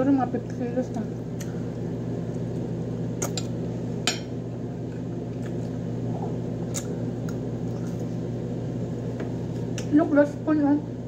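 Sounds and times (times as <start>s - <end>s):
low mechanical hum: 0.0s - 11.0s
chewing: 6.6s - 8.2s.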